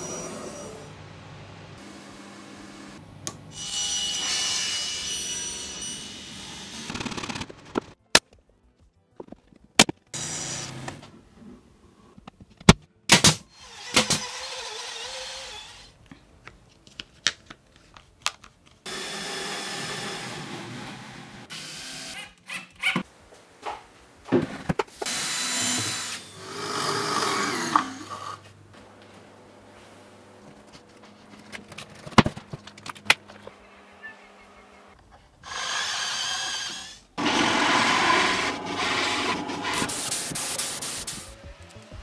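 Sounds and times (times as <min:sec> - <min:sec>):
power tools whirring: 0:18.9 - 0:22.2, 0:25.0 - 0:28.5, 0:35.4 - 0:41.4.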